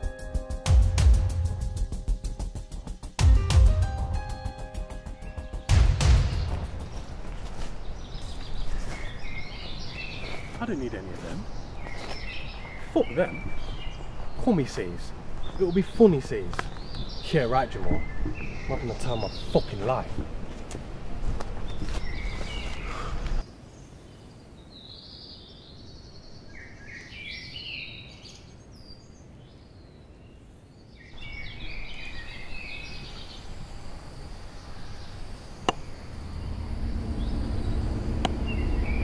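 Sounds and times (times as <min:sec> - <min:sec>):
small birds chirping: 0:04.4 - 0:20.6, 0:21.5 - 0:39.0
low outdoor rumble: 0:32.2 - 0:39.0.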